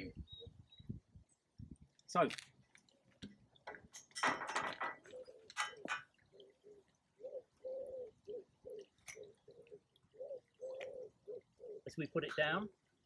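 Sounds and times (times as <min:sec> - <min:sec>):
pigeon cooing: 0:04.9 - 0:11.9.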